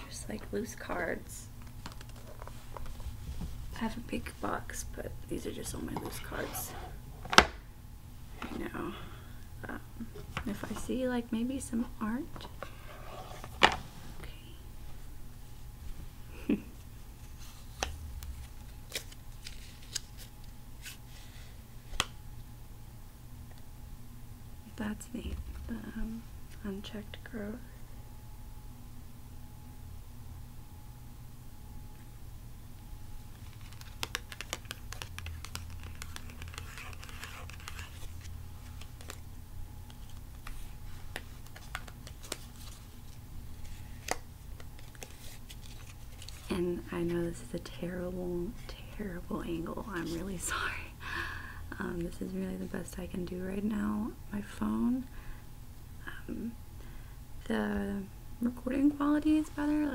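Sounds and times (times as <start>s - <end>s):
low recording hum: 0.0s - 59.9s
cards sliding rustle: 17.2s - 22.1s, 33.3s - 39.3s, 39.9s - 46.5s
cards clicking and snapping: 33.4s - 39.2s.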